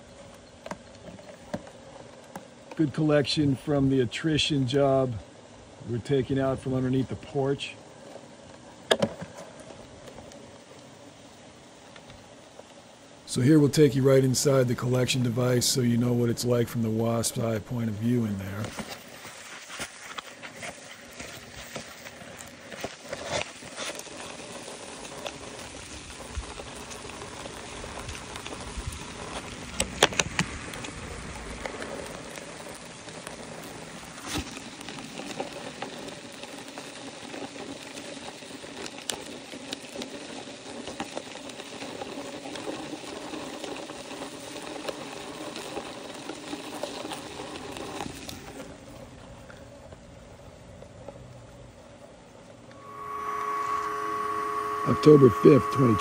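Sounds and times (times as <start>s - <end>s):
steady hiss: 0.0s - 56.0s
wasps buzzing in plastic bottle: 52.8s - 56.0s.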